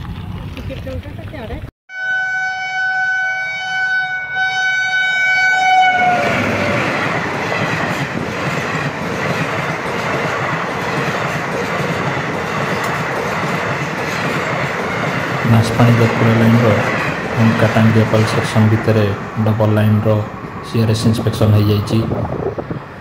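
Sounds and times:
train horn blast: 1.9s - 7.0s
train coaches rattling by: 5.3s - 23.0s.

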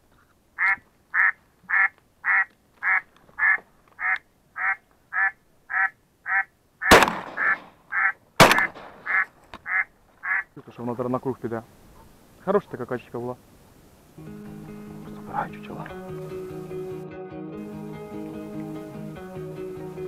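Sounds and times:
duck call quacks: 0.6s - 8.2s, 9.0s - 10.5s
shotgun firing: 6.9s - 7.8s, 8.4s - 9.2s.

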